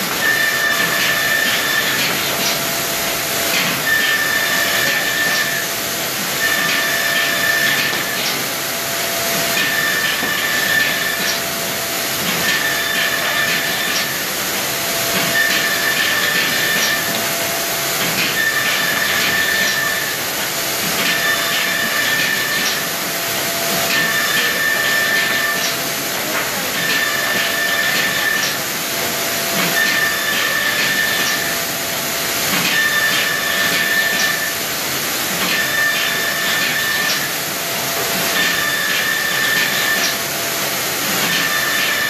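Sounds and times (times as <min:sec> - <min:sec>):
high machine tone: 0:00.0 - 0:28.7, 0:29.3 - 0:34.7, 0:35.6 - 0:40.3.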